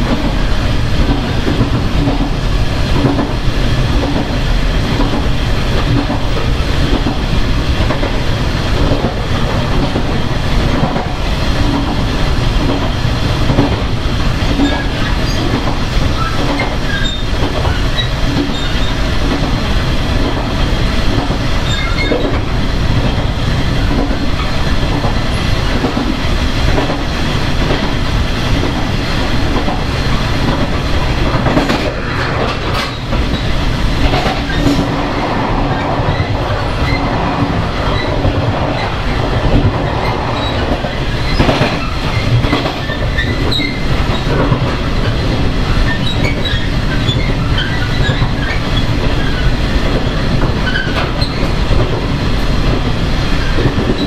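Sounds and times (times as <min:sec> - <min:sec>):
train wheels rumbling: 0:00.0 - 0:54.0
wheels clattering over rail joints: 0:08.8 - 0:52.8
high wheel squeaks: 0:16.2 - 0:19.0, 0:21.6 - 0:22.3, 0:45.9 - 0:49.5.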